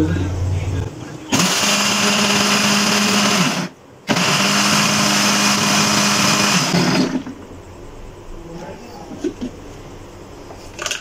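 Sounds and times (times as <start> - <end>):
electric blender motor running: 1.3 - 7.3.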